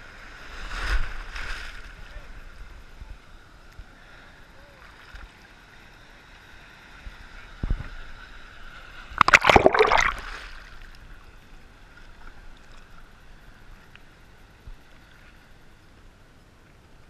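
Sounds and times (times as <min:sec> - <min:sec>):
seawater splashing: 0:09.2 - 0:10.7
water sloshing: 0:09.2 - 0:10.8.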